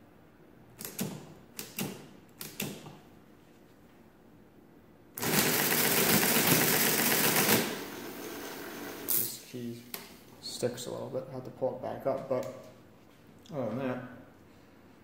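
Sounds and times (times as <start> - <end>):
calculator mechanism running: 5.2 - 9.2.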